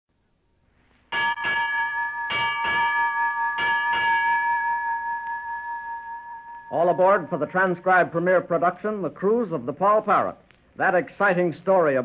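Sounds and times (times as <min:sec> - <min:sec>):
bell ringing: 0:01.1 - 0:08.7.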